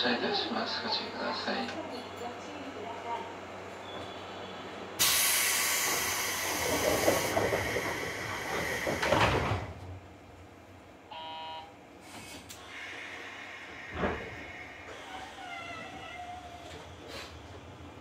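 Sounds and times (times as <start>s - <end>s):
brief tone: 3.8s - 4.6s, 11.1s - 11.7s
loud hiss of air: 5.0s - 9.2s, 12.0s - 15.0s
train doors sliding and thudding shut: 5.0s - 10.1s, 12.0s - 13.0s, 13.8s - 17.8s.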